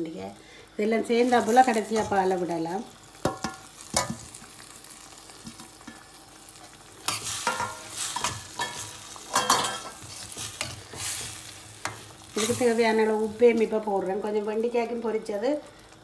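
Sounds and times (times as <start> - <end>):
sauce sizzling: 0.0 - 16.0
metal spoon scraping pan: 7.0 - 12.8.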